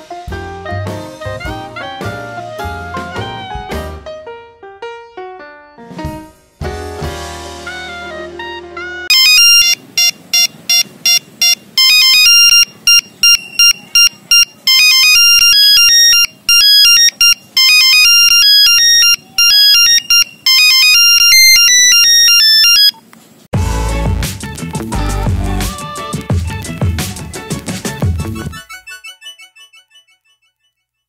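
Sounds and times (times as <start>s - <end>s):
mobile phone ringtone beeping: 8.8s - 23.0s.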